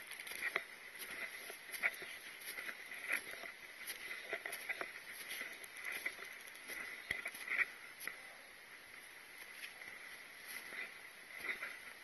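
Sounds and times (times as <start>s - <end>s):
footsteps crunching in snow: 0.0s - 8.2s, 8.8s - 12.0s.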